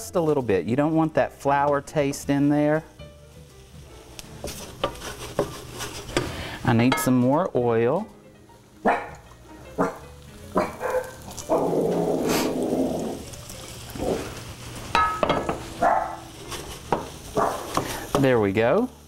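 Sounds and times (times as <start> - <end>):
onions sizzling in a skillet: 0.0 - 19.0
dog barking: 8.8 - 9.2, 9.8 - 10.0, 10.6 - 11.6, 15.8 - 16.2, 17.4 - 17.6.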